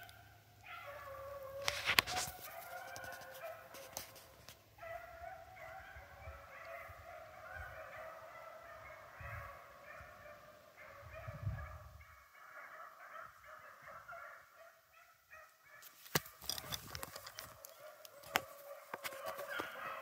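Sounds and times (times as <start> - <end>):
dogs baying in the distance: 0.0 - 20.0.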